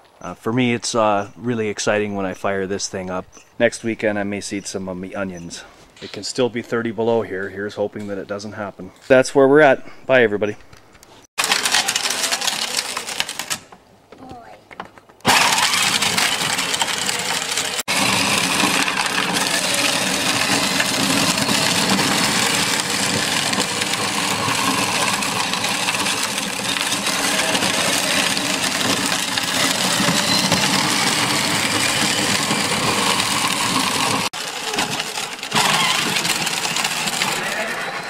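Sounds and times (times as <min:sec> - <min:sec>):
plastic wheels rattling on concrete: 0:11.4 - 0:13.7, 0:14.7 - 0:38.0
small motor whirring: 0:15.3 - 0:38.0.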